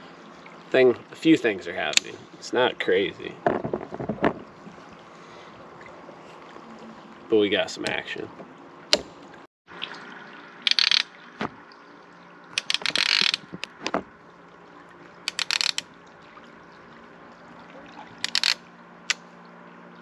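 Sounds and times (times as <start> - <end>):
fishing reel clicker ratcheting: 10.7 - 11.1, 12.6 - 13.4, 15.3 - 15.8, 18.2 - 19.2.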